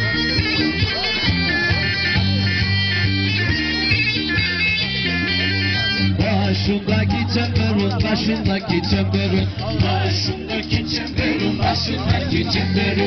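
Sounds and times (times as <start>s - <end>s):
bagpipe dance melody: 0.0s - 8.3s.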